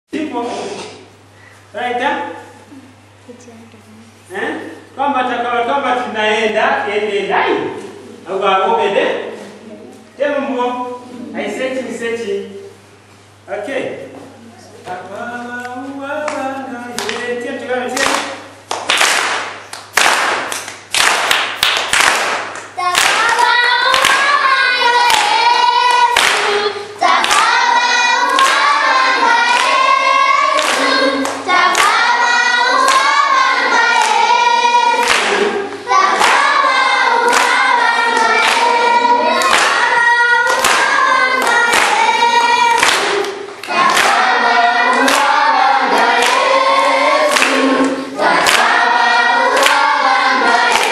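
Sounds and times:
rhythmic hand clapping: 15.6 - 50.9
children's choir singing: 21.9 - 50.9.

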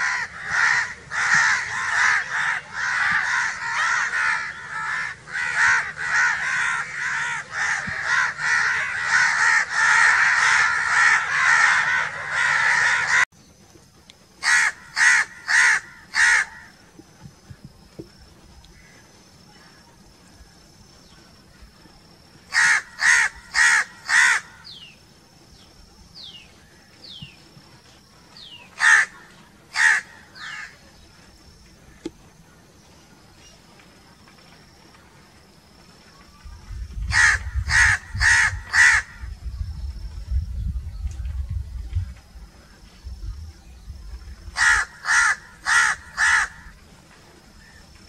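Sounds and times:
crows cawing: 0.0 - 13.2, 14.4 - 16.8, 18.7 - 19.0, 22.5 - 24.7, 28.8 - 30.8, 37.1 - 39.3, 44.6 - 46.8
low rumble: 36.5 - 44.6.

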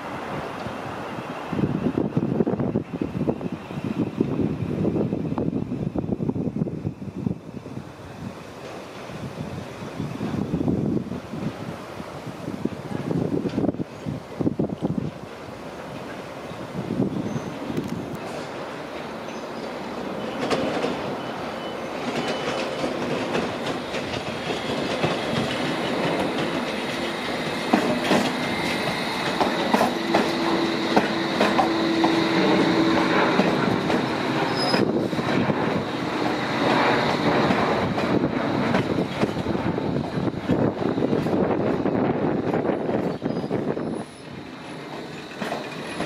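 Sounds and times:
steady train whine: 0.0 - 46.0
train wheels clicking over rail joints: 17.7 - 46.0.

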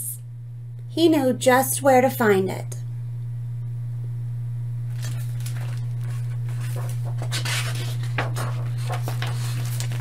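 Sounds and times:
steady low hum: 0.0 - 10.0
book pages turning: 4.9 - 10.0.

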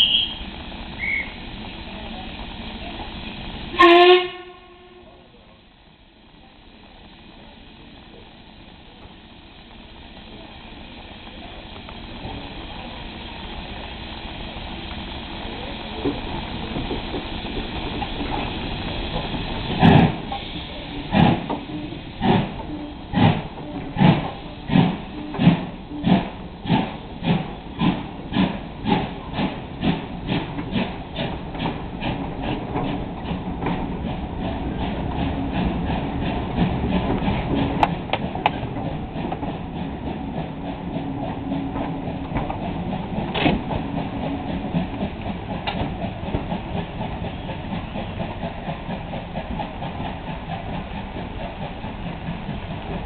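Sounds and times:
steam hissing: 0.0 - 4.6, 5.3 - 53.0
steam locomotive exhaust chuffs: 0.0 - 53.0.

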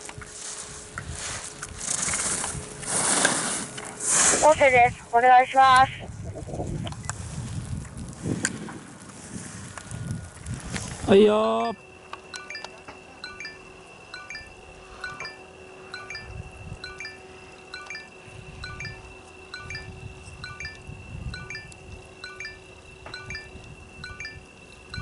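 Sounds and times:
low gusts of noise: 0.0 - 12.1, 13.8 - 17.5, 18.2 - 25.0
steady high tone: 11.6 - 25.0
high chime-like pings: 12.4 - 20.8, 21.4 - 24.4.

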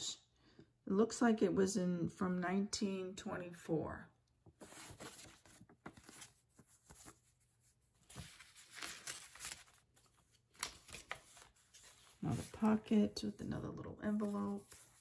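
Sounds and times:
paper pages rustling and crinkling: 4.4 - 13.3, 14.0 - 15.0.

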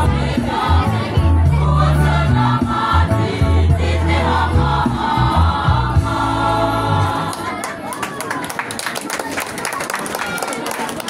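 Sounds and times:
low bass notes: 0.0 - 7.3
choir singing in parts: 0.0 - 7.4.

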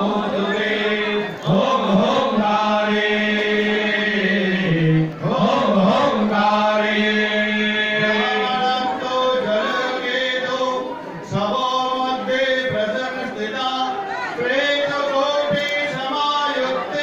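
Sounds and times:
man chanting: 4.0 - 17.0.

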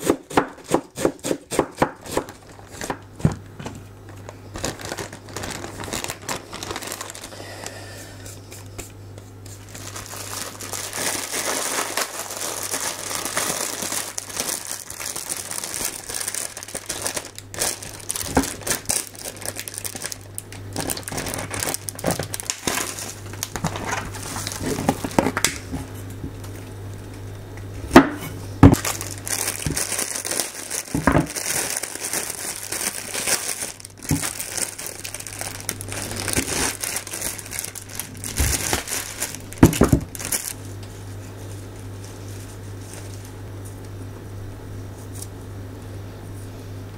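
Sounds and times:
plastic bags crinkling: 2.2 - 8.2, 9.3 - 25.7, 28.6 - 43.5
packaging being cut: 9.6 - 25.4, 28.8 - 40.6.

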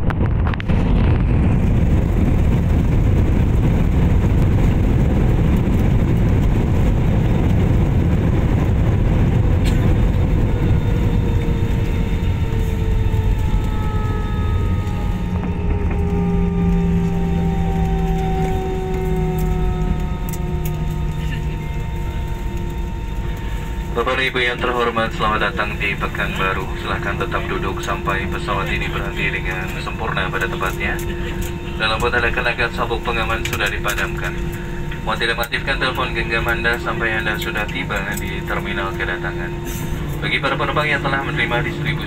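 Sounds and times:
jet engine whine spooling down: 0.0 - 42.0
wheels and engines rumbling: 0.0 - 42.0.

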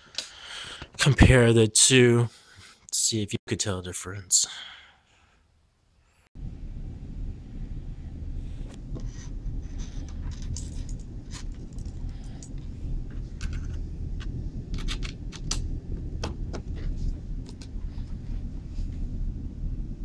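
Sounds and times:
steady low rumble: 6.4 - 20.0
cable connectors clicking and rattling: 10.1 - 12.6, 13.3 - 15.6.

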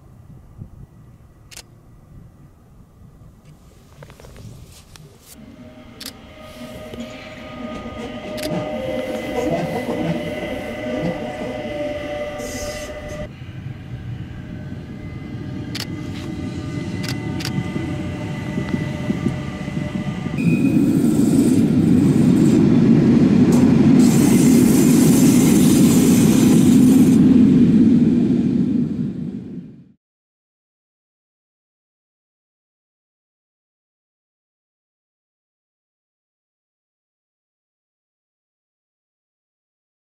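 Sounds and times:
train wheels rumbling on rail: 3.4 - 29.8
electric motor whine: 5.4 - 22.7.

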